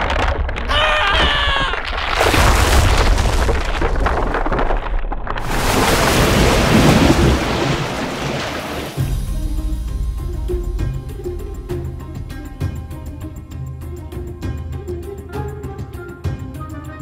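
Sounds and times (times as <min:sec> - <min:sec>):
deep booming rumble: 0:00.0 - 0:14.2
rushing flood water: 0:05.4 - 0:09.2.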